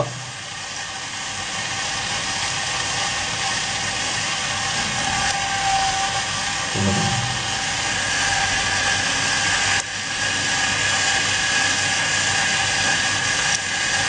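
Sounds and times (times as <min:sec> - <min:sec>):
small electric motor whirring: 0:01.5 - 0:14.0
faint steady whine: 0:03.6 - 0:11.7.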